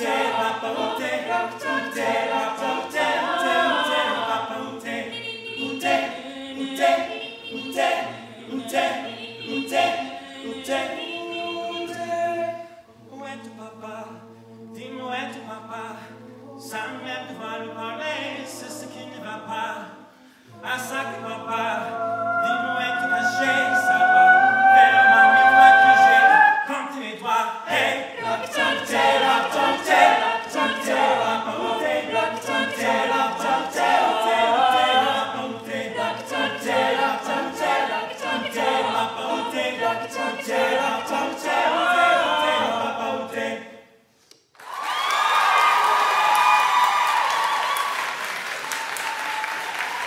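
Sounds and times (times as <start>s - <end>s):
vocal group singing in harmony: 0.0s - 44.0s
vocal percussion beat: 21.5s - 27.4s.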